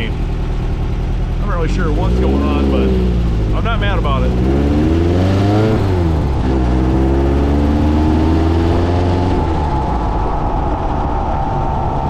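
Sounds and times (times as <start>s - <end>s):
engine revving under way: 1.4s - 10.1s.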